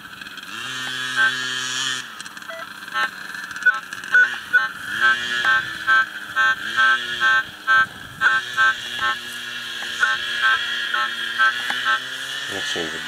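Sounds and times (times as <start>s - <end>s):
metal detector beeping: 1.1s - 1.5s, 2.3s - 12.2s.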